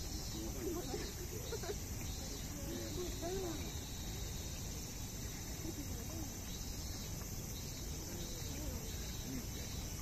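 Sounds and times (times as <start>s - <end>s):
faint distant human voices: 0.0s - 10.0s
insects chirring: 0.0s - 10.0s.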